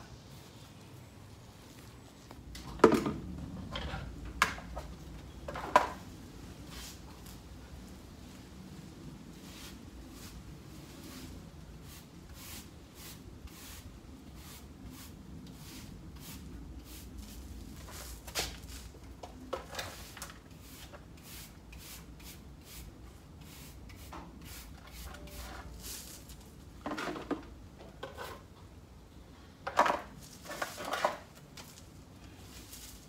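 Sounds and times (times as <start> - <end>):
clattering handling noises: 25.1 - 28.7, 29.6 - 31.9.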